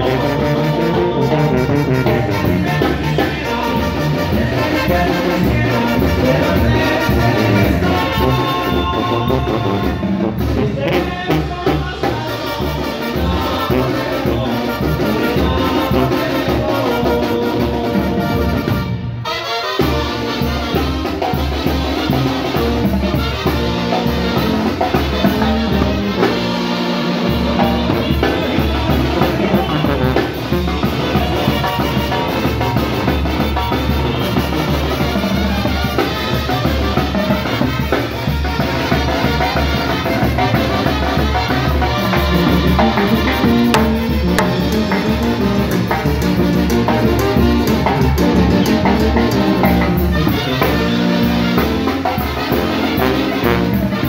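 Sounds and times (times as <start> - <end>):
timbales and drum kit: 0.0 - 19.2, 19.8 - 54.0
trumpets and saxophones: 0.0 - 54.0
sousaphone bass line: 23.6 - 35.5, 40.4 - 52.0.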